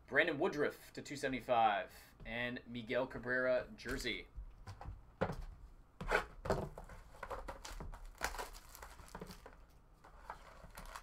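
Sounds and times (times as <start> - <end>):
packaging crinkling: 7.2 - 11.0.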